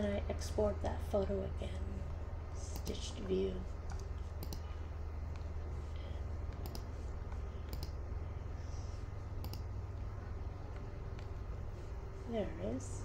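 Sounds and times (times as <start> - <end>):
steady low hum: 0.0 - 13.0
computer mouse clicking: 2.7 - 5.6, 6.4 - 8.0, 9.4 - 9.8.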